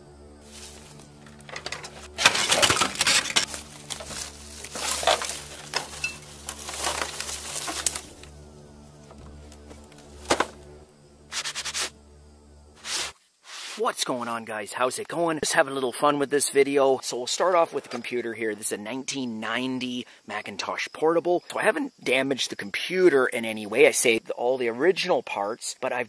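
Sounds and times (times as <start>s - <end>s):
background music: 0.0s - 19.6s
plastic and boards cracking and rustling: 1.2s - 8.4s, 9.1s - 10.6s.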